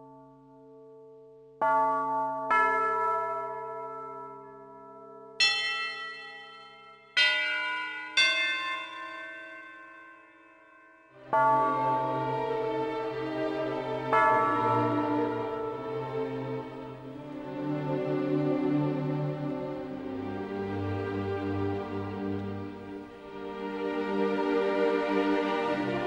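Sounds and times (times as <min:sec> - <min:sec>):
bell tolling: 0:05.4 - 0:17.4.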